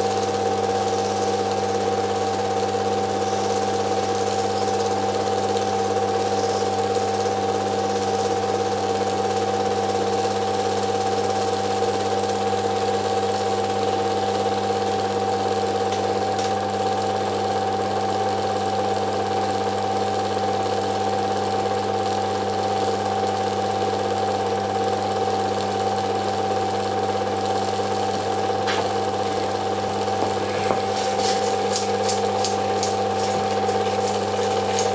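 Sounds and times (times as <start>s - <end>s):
film projector humming and whining: 0.0s - 34.9s
film mechanism rattling: 30.9s - 34.9s.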